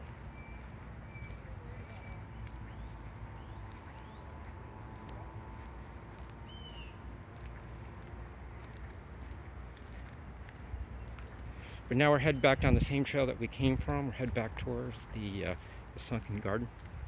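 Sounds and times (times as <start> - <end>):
footsteps on pavement: 0.0 - 17.0
steady low rumble: 0.0 - 17.0
bird chirps: 0.3 - 4.4, 6.4 - 7.0.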